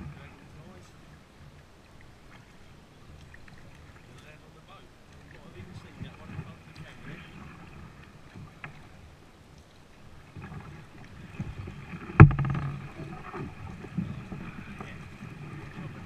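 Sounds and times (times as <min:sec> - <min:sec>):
kayak paddle strokes: 0:00.0 - 0:16.0
weeds rustling against hull: 0:09.9 - 0:16.0.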